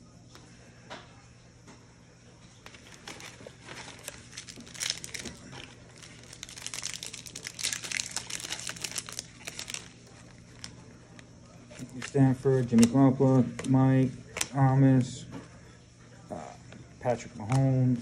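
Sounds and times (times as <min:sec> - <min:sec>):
plastic foil wrapper crinkling: 0:02.6 - 0:14.7.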